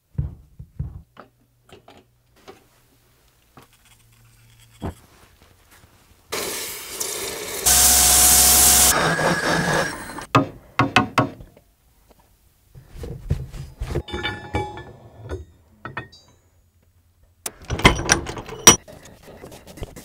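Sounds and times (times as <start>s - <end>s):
metallic ring: 14.0s - 16.5s.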